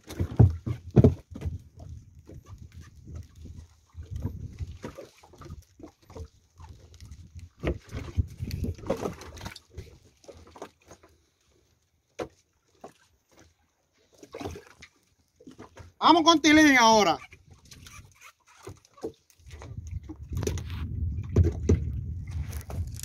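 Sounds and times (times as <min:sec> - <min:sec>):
knocks and rustles of fishing gear: 0:00.0 - 0:13.5, 0:14.1 - 0:16.0, 0:17.3 - 0:23.0.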